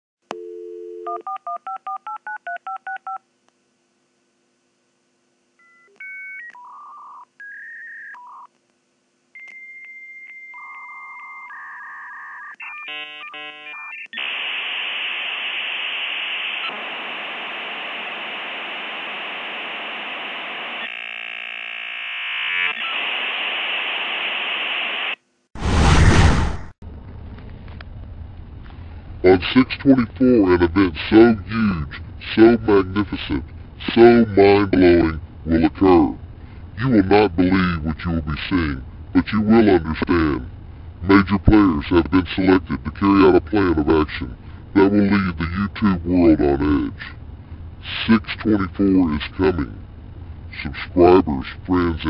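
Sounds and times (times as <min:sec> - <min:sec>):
dial tone: 0:00.3 - 0:03.2, 0:09.3 - 0:14.3.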